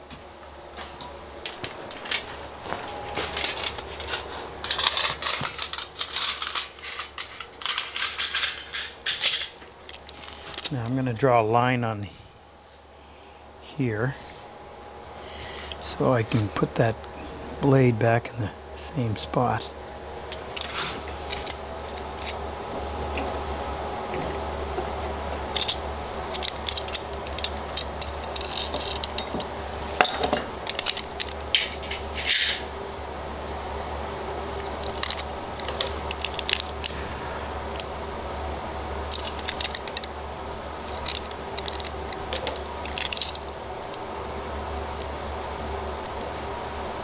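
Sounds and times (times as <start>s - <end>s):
steady background hum: 0.0s - 47.0s
foil tape clicks and crinkles: 3.3s - 10.9s, 25.4s - 29.2s, 30.6s - 32.2s, 34.5s - 37.9s, 39.1s - 44.1s.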